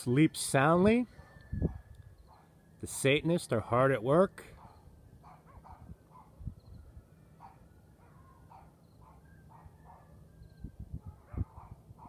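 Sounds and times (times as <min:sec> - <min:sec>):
dogs barking and howling: 0:01.1 - 0:02.6, 0:04.4 - 0:06.4, 0:07.4 - 0:10.3, 0:11.0 - 0:12.0.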